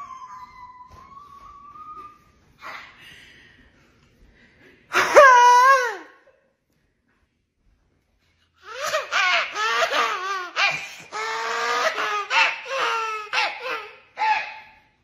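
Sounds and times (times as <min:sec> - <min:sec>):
woman vocalizing wavering cries: 0:00.0 - 0:02.8, 0:05.0 - 0:06.2.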